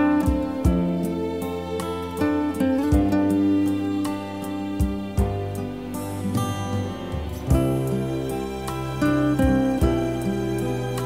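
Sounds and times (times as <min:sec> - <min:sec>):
plucked string notes: 0:00.0 - 0:11.0
soft instrumental music: 0:00.0 - 0:11.0.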